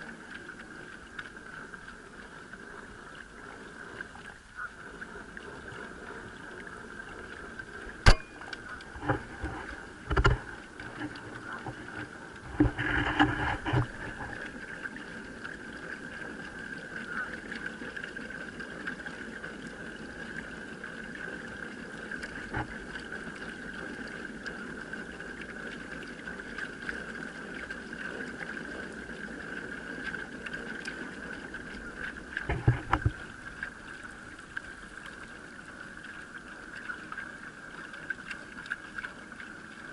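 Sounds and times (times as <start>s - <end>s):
water wash: 0.0s - 39.9s
sharp click: 8.0s - 8.6s.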